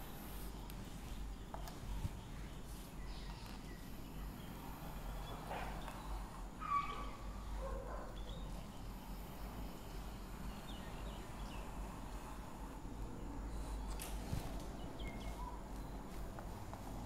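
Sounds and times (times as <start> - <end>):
low steady hum: 0.0 - 17.0
chalk squeaks: 5.3 - 7.4.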